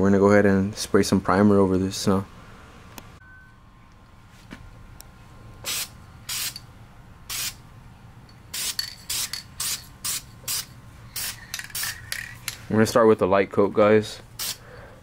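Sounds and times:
aerosol can spraying: 0:05.6 - 0:06.6, 0:07.3 - 0:07.6, 0:08.5 - 0:12.1, 0:14.4 - 0:14.6.

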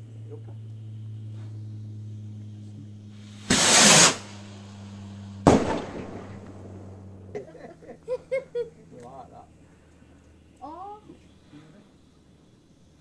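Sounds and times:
firework rocket whoosh: 0:03.1 - 0:07.0
firework bang: 0:03.2 - 0:07.2.

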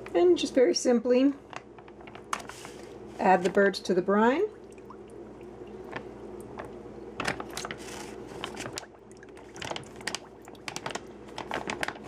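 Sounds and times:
plastic bag crinkling: 0:01.4 - 0:03.6, 0:05.8 - 0:12.0
liquid sloshing in bag: 0:04.5 - 0:12.0.

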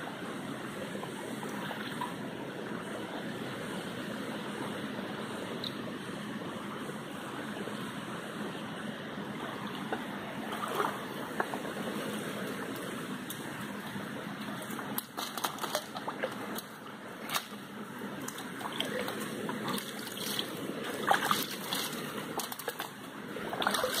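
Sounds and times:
stream running over stones: 0:00.0 - 0:24.0
water splashing: 0:09.3 - 0:24.0.

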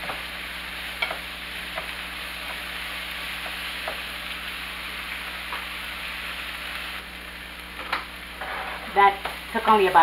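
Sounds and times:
vegetables sizzling in a frying pan: 0:00.0 - 0:10.0
wooden spatula scraping a pan: 0:08.4 - 0:09.1.

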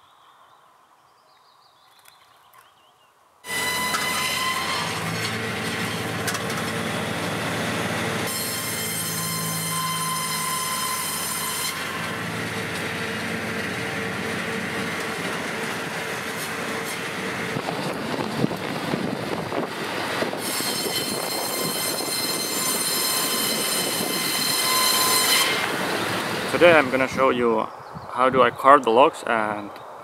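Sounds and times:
rough sawing noise: 0:03.5 - 0:27.4
saw blade whine: 0:03.5 - 0:27.4.

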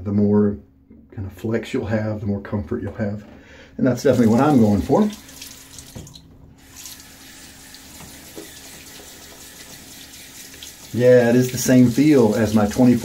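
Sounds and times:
tap water splashing into sink: 0:04.1 - 0:13.0.

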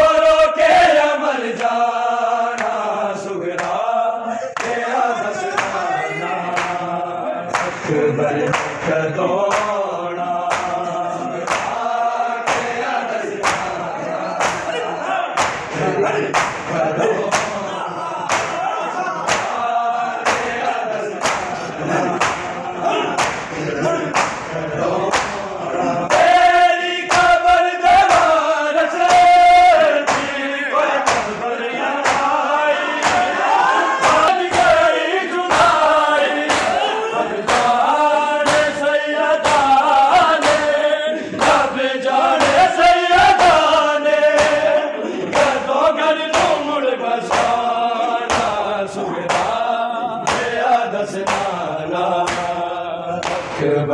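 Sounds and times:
men chanting a lament: 0:00.0 - 0:53.9
hands slapping chests: 0:02.5 - 0:02.9, 0:03.5 - 0:03.9, 0:04.5 - 0:05.8, 0:06.5 - 0:06.9, 0:07.5 - 0:08.9, 0:09.5 - 0:09.9, 0:10.5 - 0:10.8, 0:11.4 - 0:13.8, 0:14.4 - 0:14.8, 0:15.4 - 0:25.5, 0:27.1 - 0:27.4, 0:28.0 - 0:28.4, 0:29.0 - 0:29.4, 0:30.0 - 0:30.4, 0:31.0 - 0:31.4, 0:32.0 - 0:34.9, 0:35.5 - 0:38.8, 0:39.4 - 0:40.8, 0:41.4 - 0:41.7, 0:42.3 - 0:45.6, 0:46.3 - 0:48.6, 0:49.3 - 0:51.6, 0:52.2 - 0:53.6.

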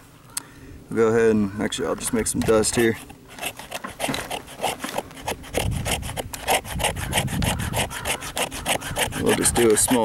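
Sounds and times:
knife scraping wood stick: 0:02.4 - 0:10.0.

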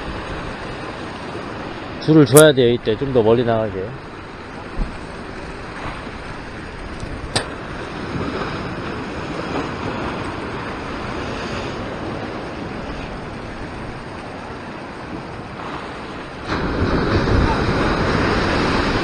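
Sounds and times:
ocean surf over rocks: 0:00.0 - 0:19.0.

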